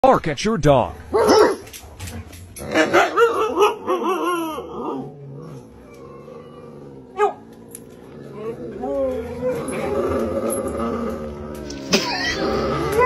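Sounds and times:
huskies howling: 0:02.7 - 0:13.0.

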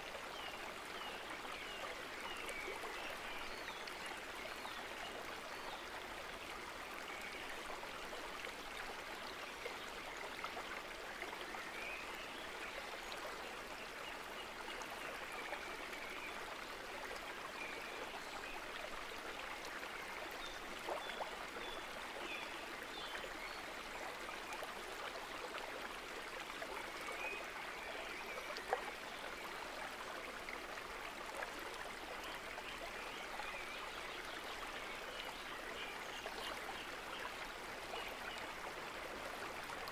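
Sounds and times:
rushing water: 0:00.0 - 0:39.9.

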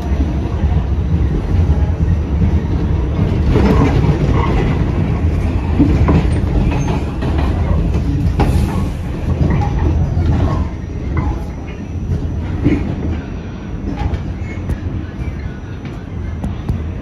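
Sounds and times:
subway train rumbling: 0:00.0 - 0:17.0
wheels clacking over rail joints: 0:03.1 - 0:13.2.

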